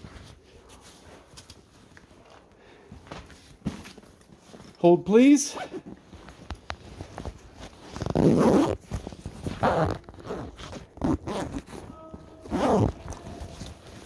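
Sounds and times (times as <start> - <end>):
phone rubbing against clothing: 7.0 - 13.5.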